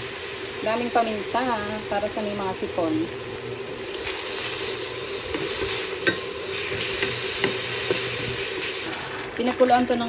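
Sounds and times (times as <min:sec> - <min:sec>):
chicken sizzling in oil: 0:00.0 - 0:10.0
spatula scraping and clicking on pan: 0:05.3 - 0:08.5.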